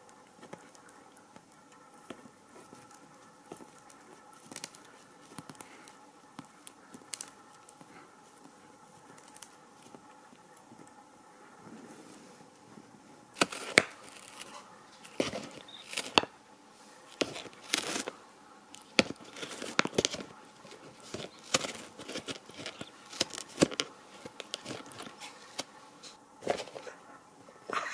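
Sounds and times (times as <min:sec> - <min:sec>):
cat tearing cardboard with teeth: 0:13.4 - 0:16.3, 0:17.1 - 0:18.2, 0:18.8 - 0:25.8.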